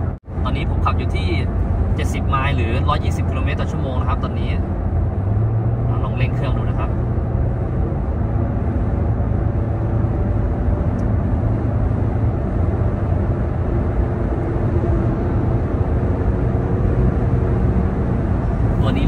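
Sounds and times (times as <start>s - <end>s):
engine accelerating: 0.0s - 19.0s
road and wind noise: 0.0s - 19.0s.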